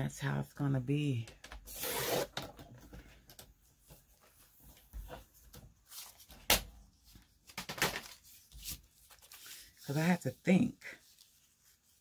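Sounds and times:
paper rustling and taps: 2.4s - 9.6s.

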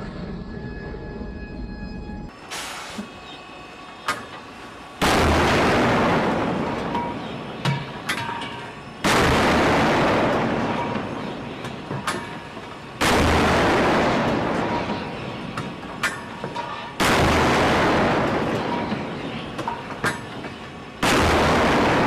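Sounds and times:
deck gun blasts: 9.0s - 10.7s, 13.0s - 14.7s, 17.0s - 18.6s, 21.0s - 22.0s.

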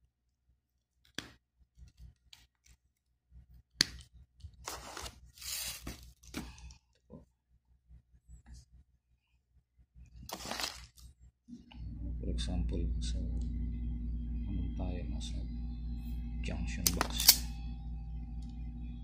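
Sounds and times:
paper rustling and scraping: 4.6s - 6.4s, 10.2s - 11.1s.

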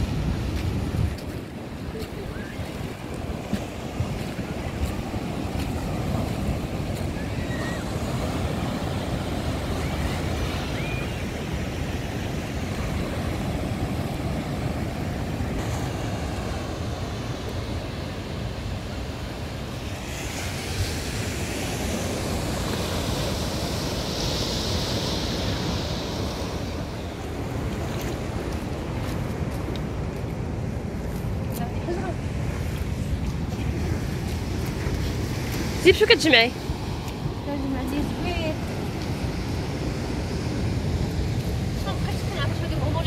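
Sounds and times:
surf breaking on rocky shore: 0.0s - 43.0s
wind rumbling on microphone: 0.0s - 43.0s.

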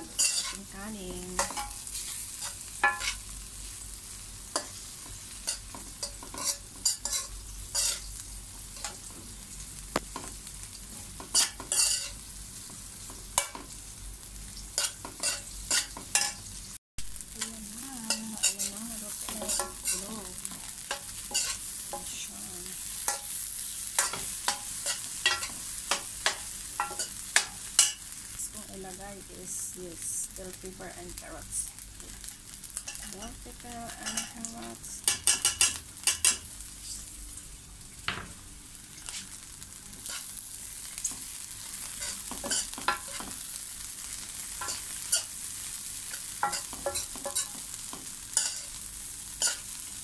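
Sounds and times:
metal spoon scraping a pan: 0.0s - 0.7s, 1.4s - 3.3s, 4.5s - 8.1s, 11.2s - 12.2s, 14.8s - 16.4s, 18.0s - 22.3s, 23.0s - 28.0s, 32.8s - 33.4s, 34.0s - 37.1s, 40.0s - 40.3s, 41.8s - 43.4s, 44.5s - 45.4s, 46.0s - 48.8s, 49.4s - 49.8s
food sizzling in a pan: 0.0s - 50.0s.

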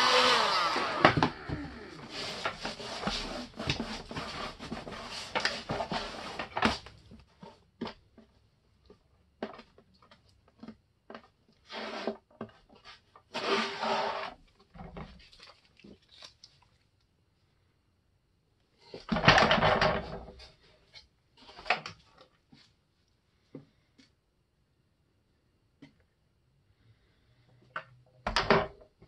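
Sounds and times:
blade scraping plastic film: 0.0s - 7.0s, 11.6s - 14.4s.

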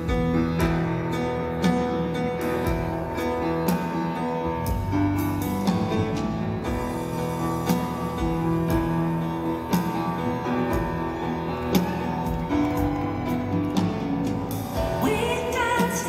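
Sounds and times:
woman singing: 14.8s - 16.0s.

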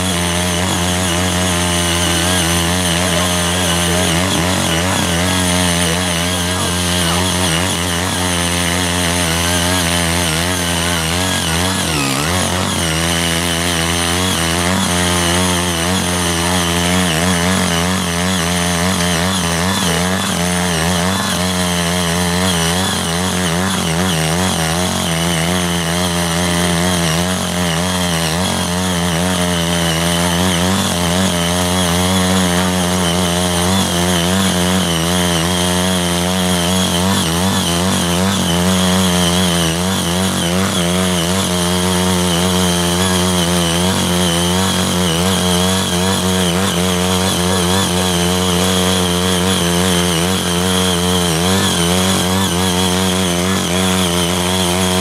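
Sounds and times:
power tiller engine running: 0.0s - 55.0s.

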